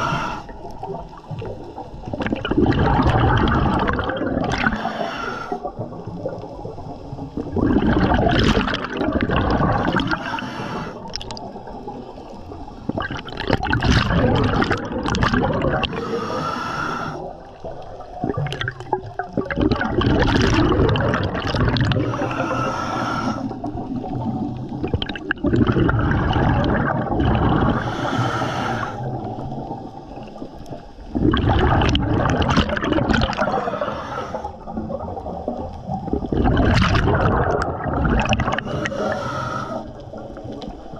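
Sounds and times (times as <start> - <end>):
regulator inhalation hiss: 0.0 - 0.6, 4.7 - 5.7, 10.1 - 11.1, 16.0 - 17.4, 22.0 - 23.6, 27.7 - 29.2, 33.5 - 34.6, 38.6 - 40.0
exhaled bubbles gurgling: 0.0 - 40.9.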